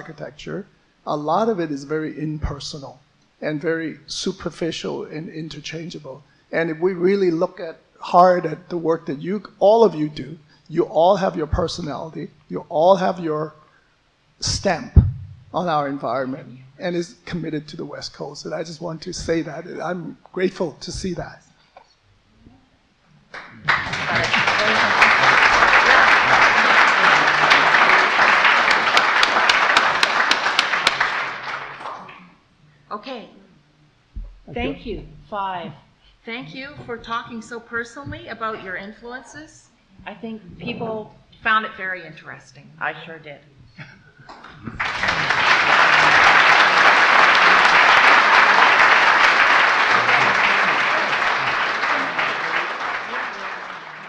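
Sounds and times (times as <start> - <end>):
audience applauding: 23.4 - 32.2, 44.6 - 54.0.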